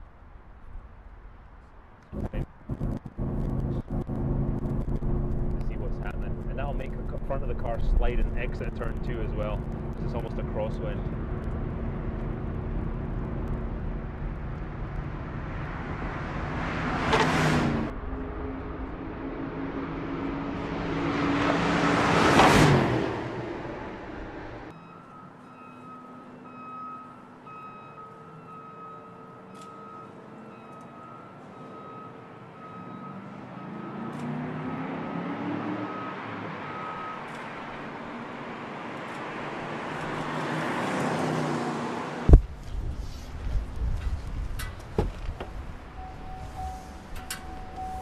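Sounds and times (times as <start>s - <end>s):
road and wind noise: 0.0s - 25.5s, 26.1s - 48.0s
car engine at speed: 2.1s - 24.7s, 33.4s - 42.4s
short high beep: 46.0s - 48.0s.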